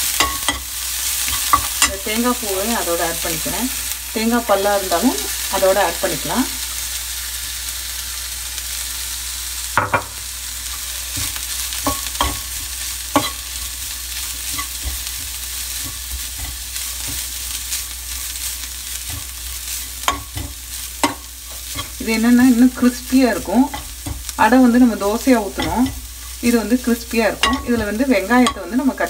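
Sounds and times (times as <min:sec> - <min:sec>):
spoon scraping a pan: 0:00.0 - 0:03.5, 0:09.9 - 0:29.0
coconut sizzling in a frying pan: 0:00.0 - 0:29.0
spoon clinking against pan: 0:00.2 - 0:00.7, 0:13.1 - 0:13.4, 0:27.4 - 0:28.7.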